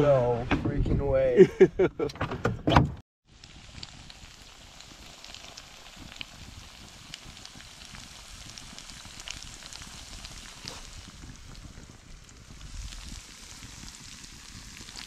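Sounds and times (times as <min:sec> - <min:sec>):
fish frying in oil: 0:03.2 - 0:15.0
sharp crackling pops: 0:03.3 - 0:15.0.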